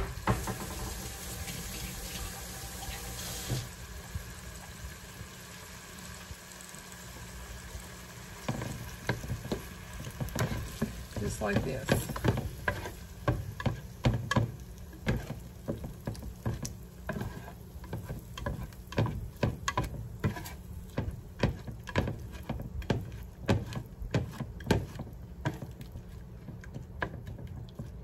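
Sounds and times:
faint sizzle of eggs: 0.0s - 28.0s
spatula scraping and tapping pan: 8.4s - 28.0s.

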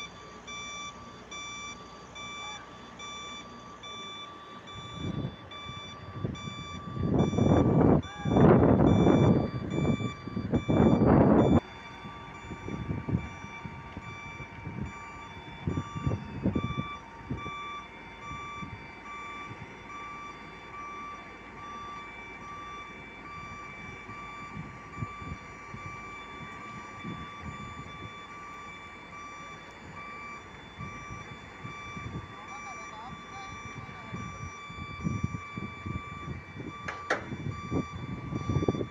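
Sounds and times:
electronic warning beeper: 0.0s - 38.9s
low thuds: 34.8s - 38.9s.

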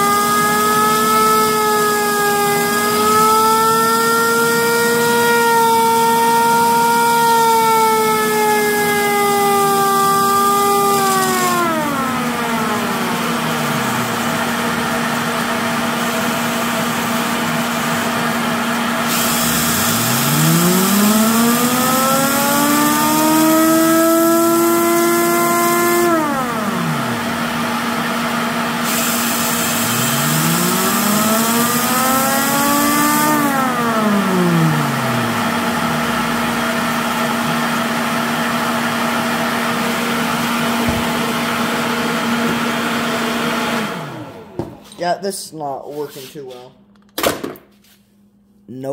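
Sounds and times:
siren wail: 0.0s - 44.6s
leaf blower running: 0.0s - 44.9s
cordless drill whine: 5.4s - 17.6s, 18.9s - 28.0s, 28.8s - 42.8s.

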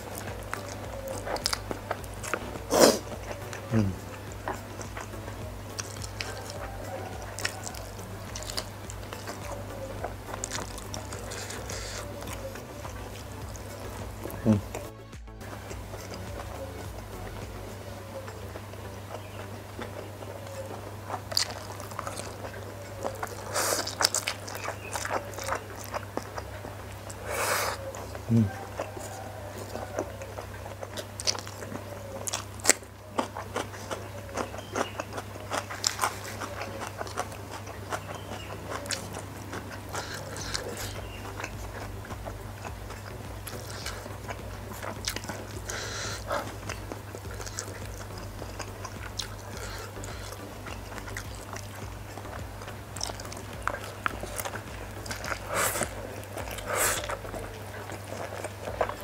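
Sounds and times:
slurping noodles: 0.0s - 16.4s, 21.2s - 30.2s, 53.4s - 59.0s
low hum: 0.0s - 23.5s, 35.2s - 59.0s
man chewing noodles: 0.0s - 59.0s.

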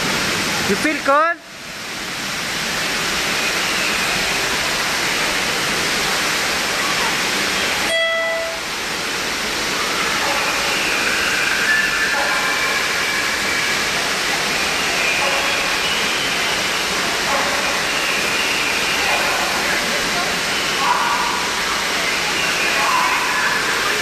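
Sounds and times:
rushing water: 0.0s - 24.0s.

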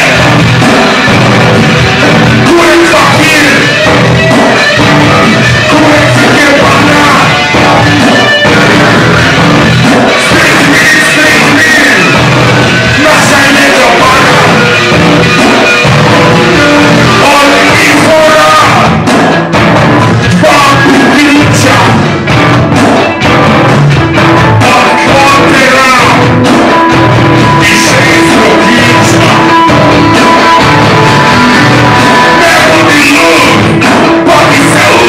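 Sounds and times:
rock band playing: 0.0s - 35.0s
man singing into a microphone: 2.0s - 4.0s, 5.2s - 9.4s, 10.1s - 14.9s, 15.6s - 19.0s, 20.2s - 22.2s, 24.6s - 26.4s, 27.4s - 30.4s, 31.1s - 35.0s.

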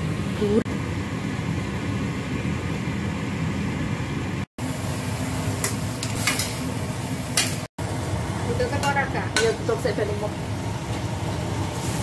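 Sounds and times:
leafy greens sizzling in a wok: 4.6s - 12.0s.

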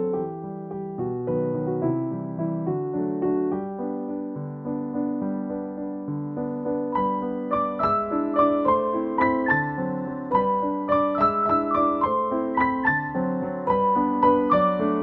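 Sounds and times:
gentle piano melody: 0.0s - 15.0s.

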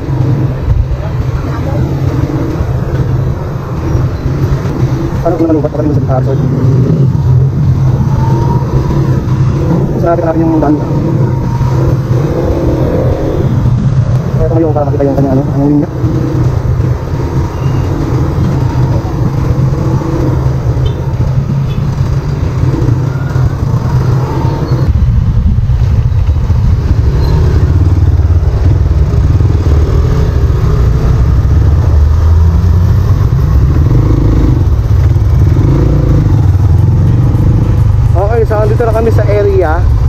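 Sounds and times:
motorcycle engine running: 0.0s - 40.0s
wind noise on microphone: 15.4s - 38.2s.

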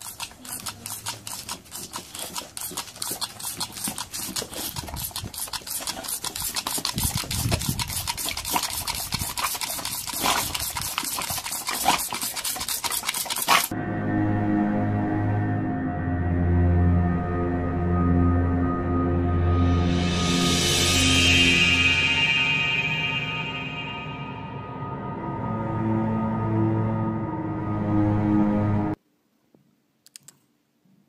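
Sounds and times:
dog snapping at water jet: 0.0s - 13.7s
water pistol spurts: 0.0s - 13.7s.

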